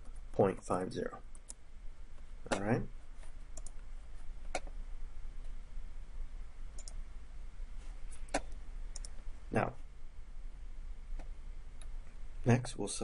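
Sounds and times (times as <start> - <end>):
low steady hum: 0.0 - 13.0
computer mouse clicking: 1.3 - 1.6, 3.6 - 3.8, 4.4 - 4.7, 6.7 - 7.0, 8.1 - 9.2.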